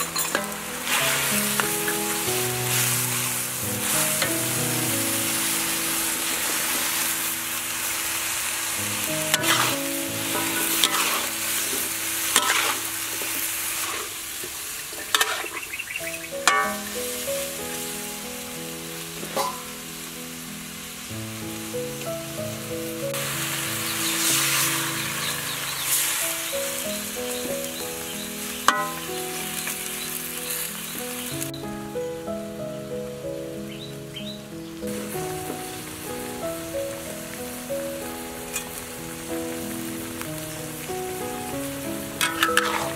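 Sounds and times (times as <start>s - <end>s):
food sizzling in a wok: 0.0s - 42.9s
water hissing in hot wok: 0.0s - 42.9s
metal spatula scraping pan: 9.3s - 11.4s, 12.3s - 12.8s, 15.0s - 15.6s, 16.5s - 16.9s, 19.2s - 19.7s, 28.7s - 29.0s, 42.2s - 42.9s.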